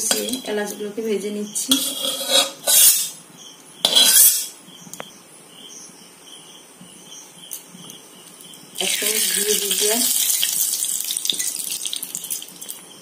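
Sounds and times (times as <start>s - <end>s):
metal spoon scraping a pan: 0.0s - 0.8s, 1.7s - 3.2s, 3.8s - 4.6s
crickets chirping: 2.4s - 13.0s.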